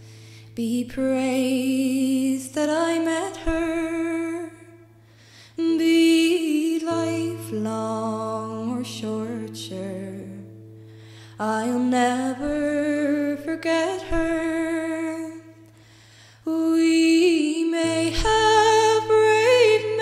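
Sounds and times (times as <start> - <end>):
person singing slow song: 16.4 - 20.0.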